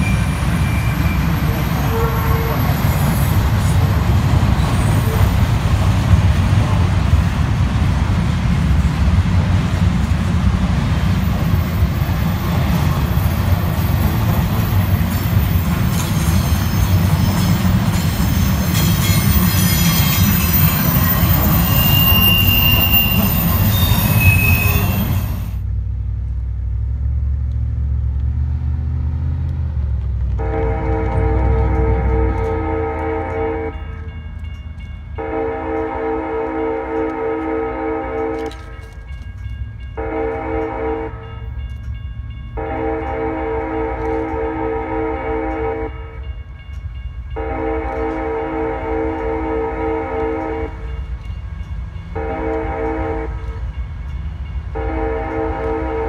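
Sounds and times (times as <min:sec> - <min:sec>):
wheel squeals: 0:00.0 - 0:05.5, 0:11.4 - 0:25.6
train wheels rumbling on rail: 0:00.0 - 0:56.0.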